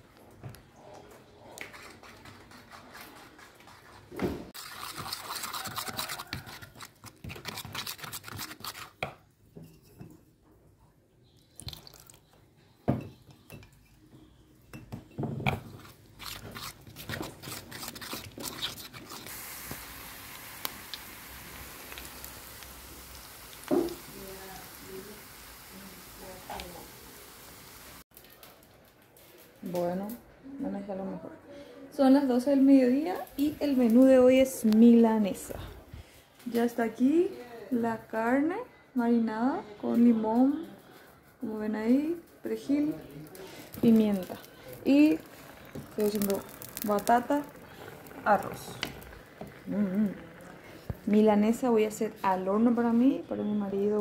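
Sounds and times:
dough sizzling in hot oil: 4.5s - 6.9s, 16.1s - 28.0s, 42.5s - 53.2s
fork scraping in a bowl: 4.6s - 9.0s, 15.6s - 19.3s.

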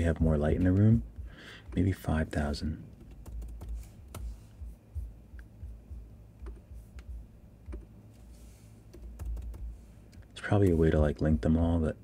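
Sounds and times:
soft low thuds: 3.3s - 8.1s.

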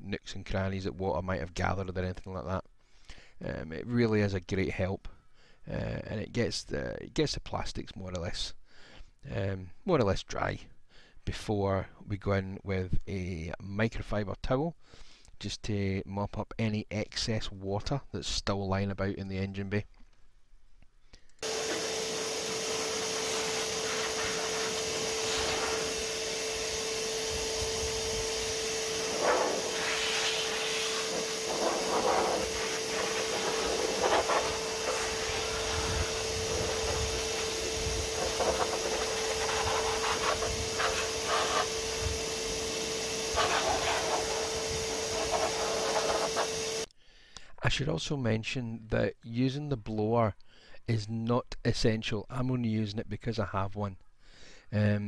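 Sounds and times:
rush of blowing air: 21.4s - 46.9s
vacuum motor drone with whine: 21.4s - 46.9s.

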